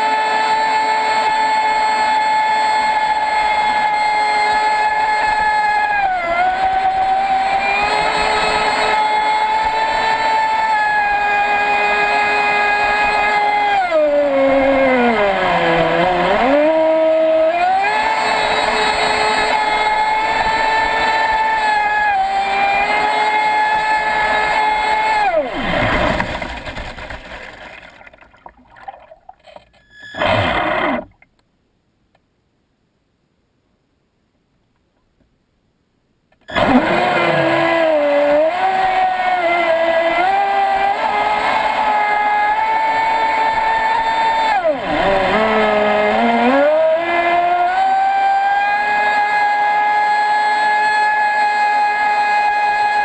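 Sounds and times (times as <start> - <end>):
electric motor whining: 0.0 - 26.8, 36.5 - 53.0
water washing against hull: 25.5 - 29.4.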